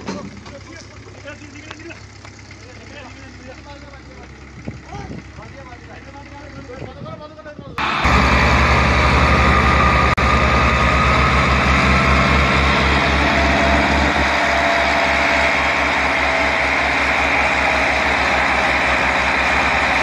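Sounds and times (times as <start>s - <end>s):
diesel tractor engine straining: 0.0s - 20.0s.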